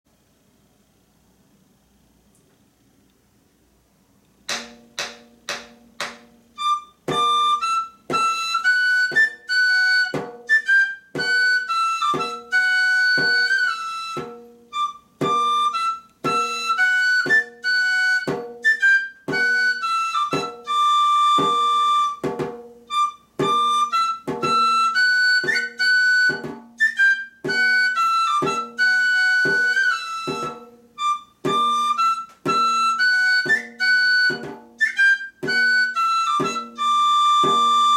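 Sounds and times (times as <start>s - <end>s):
drum beaten with stick: 4.5s - 12.6s, 13.2s - 18.7s, 19.3s - 20.7s, 21.4s - 26.8s, 27.4s - 28.8s, 29.4s - 30.8s, 31.4s - 34.8s, 35.4s - 35.8s, 36.4s - 37.9s
pipe playing lively melody: 6.0s - 22.2s, 22.9s - 37.9s.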